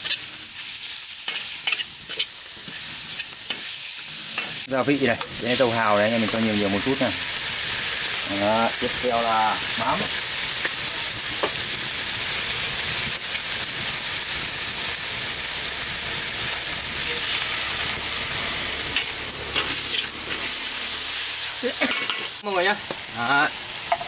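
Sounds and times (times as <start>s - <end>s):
spatula scraping a wok: 0.0s - 6.5s, 17.0s - 22.4s
food sizzling in hot oil: 0.0s - 24.0s.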